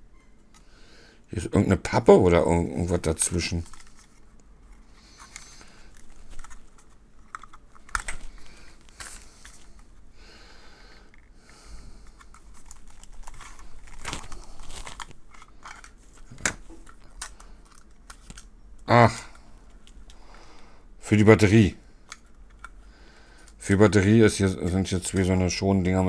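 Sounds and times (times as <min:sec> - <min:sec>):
plastic clicks and scrapes: 0:03.5 - 0:09.9, 0:12.0 - 0:18.5.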